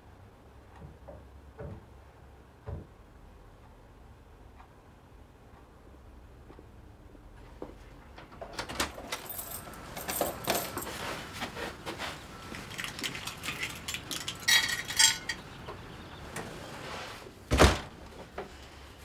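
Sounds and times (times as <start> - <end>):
keys jangling: 8.9 - 11.0, 12.5 - 15.4
footsteps: 10.0 - 15.3
door shutting with a thud: 17.5 - 18.1.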